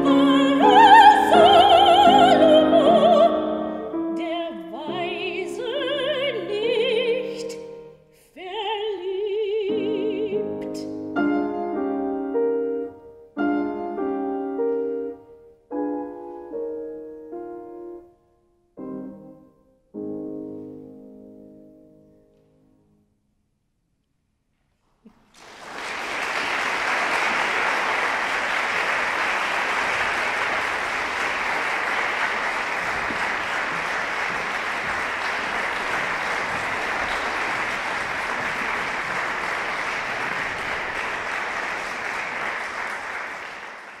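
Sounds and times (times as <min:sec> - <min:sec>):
audience applause: 0:25.3 - 0:44.0.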